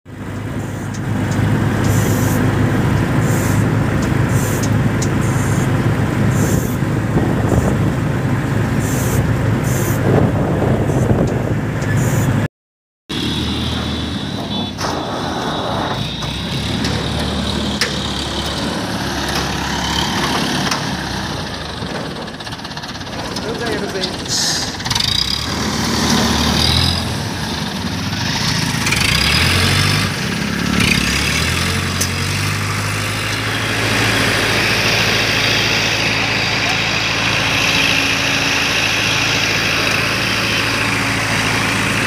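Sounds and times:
crane diesel engine running: 0.1 - 12.5, 13.1 - 42.0
road noise: 0.1 - 12.5, 13.1 - 42.0
wind noise: 6.2 - 12.4, 13.8 - 17.8.

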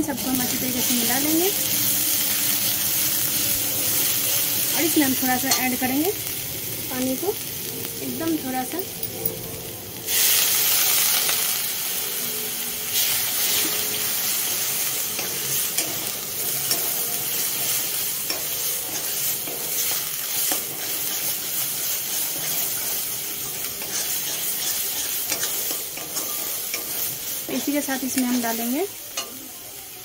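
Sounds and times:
loud sizzle and hiss of steam: 0.0 - 30.0
steady frying sizzle: 0.0 - 30.0
metal spatula scraping a pan: 15.1 - 29.4.

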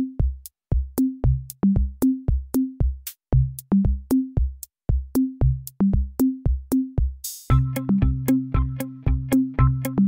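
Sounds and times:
electronic drum machine beat: 0.0 - 10.0.

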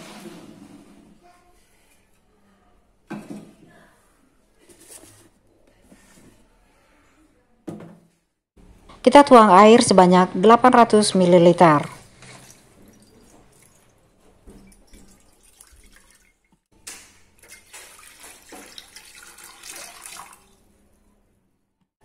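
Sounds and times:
water pouring into a metal pan: 17.5 - 20.6.

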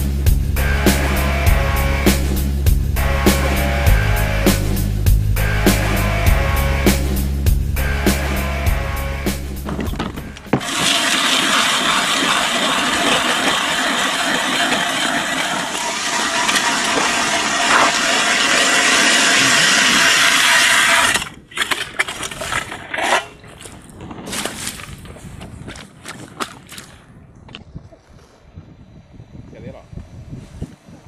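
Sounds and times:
hand auger scraping ice: 9.6 - 26.9
ice auger churning slush: 10.5 - 26.9.

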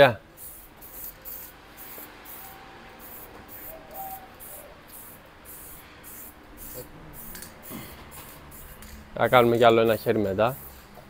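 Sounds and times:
spray paint can hissing in spurts: 0.4 - 10.9.

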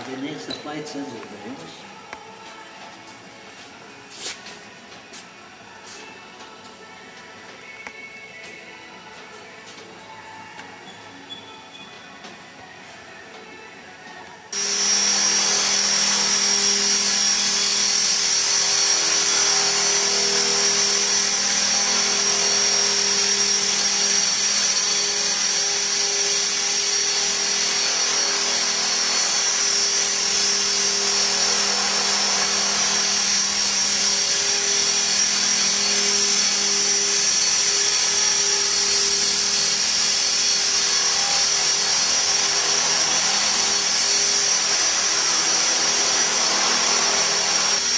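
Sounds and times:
helicopter rotor hum: 14.6 - 47.9
high motor whine: 14.6 - 47.9.

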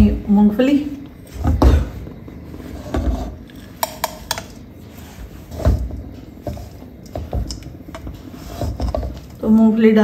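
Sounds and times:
steel spatula scraping a pan: 7.9 - 9.3.

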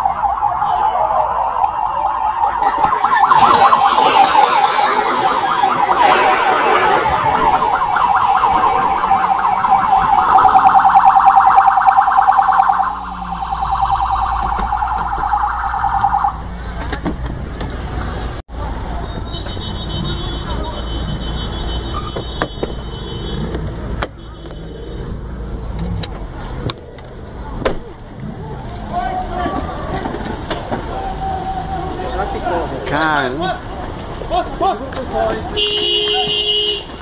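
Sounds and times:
police siren warbling: 0.0 - 16.5
rush of noise: 3.2 - 11.6.

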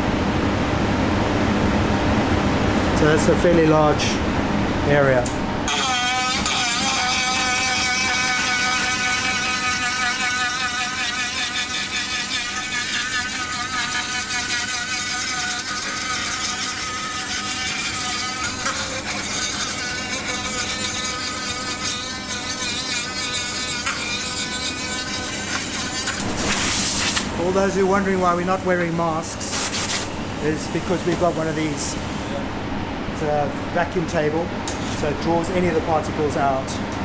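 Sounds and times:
rotary tool sanding whine: 5.7 - 32.4.

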